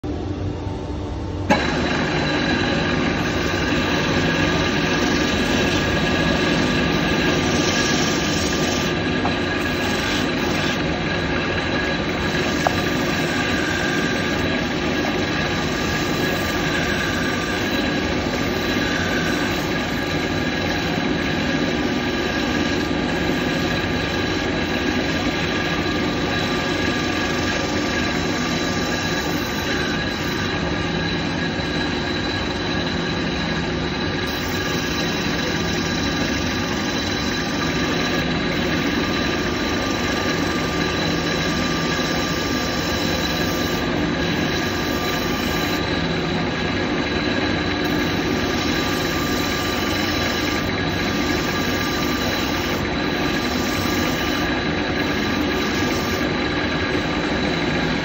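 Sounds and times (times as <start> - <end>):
spindle sander sanding wood: 2.4 - 20.6.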